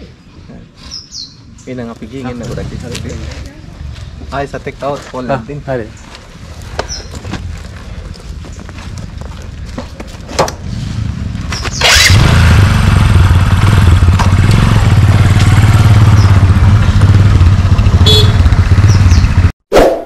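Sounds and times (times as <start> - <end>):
motorcycle engine running: 10.5 - 19.5.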